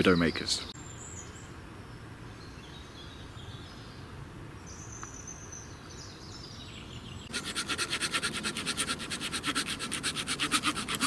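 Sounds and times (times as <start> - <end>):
faint woodland ambience: 0.0 - 11.0
hand saw rasping through wood: 7.3 - 11.0.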